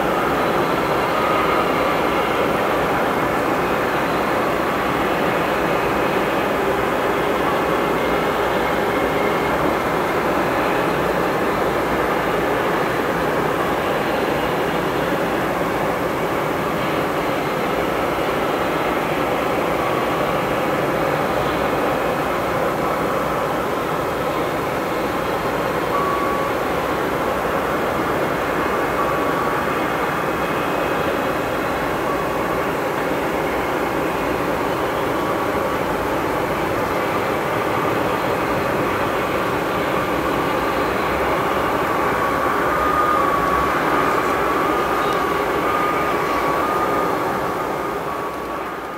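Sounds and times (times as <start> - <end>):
jet engines rumbling: 0.0 - 48.9.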